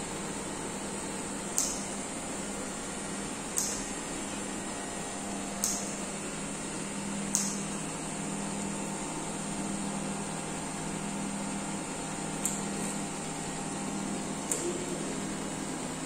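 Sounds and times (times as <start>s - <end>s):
electric pumps and fans humming: 0.0s - 16.0s.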